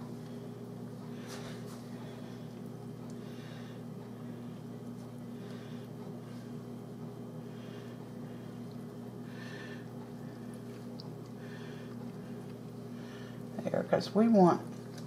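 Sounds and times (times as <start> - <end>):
steady low hum: 0.0 - 15.0
soft squishing of raw chicken: 10.3 - 12.9.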